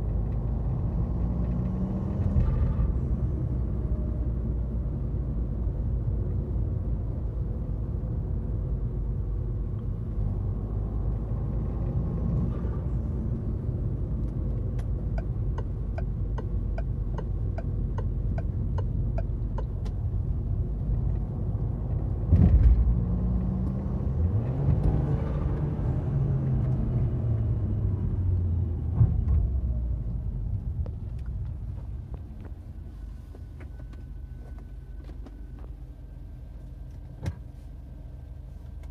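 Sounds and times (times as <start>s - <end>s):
car engine and road rumble: 0.0s - 38.9s
turn signal relay ticking: 14.7s - 20.0s.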